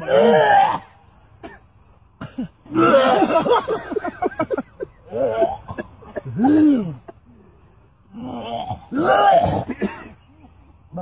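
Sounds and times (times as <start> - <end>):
coughing and throat clearing: 1.4 - 4.0, 5.1 - 7.2, 8.6 - 10.3
men gagging and retching: 2.2 - 3.9, 5.0 - 7.2, 8.2 - 10.2.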